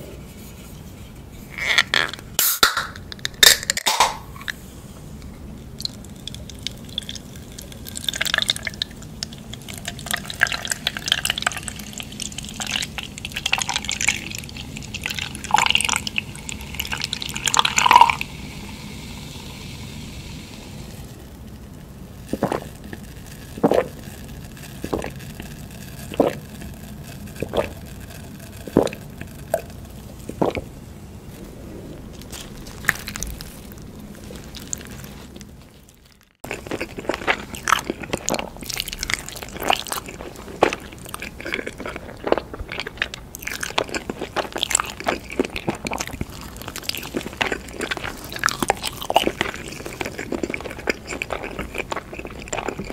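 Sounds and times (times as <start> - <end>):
person gulping drink: 5.8 - 18.3, 22.2 - 30.7, 36.1 - 52.9
soda pouring and fizzing: 5.8 - 30.6.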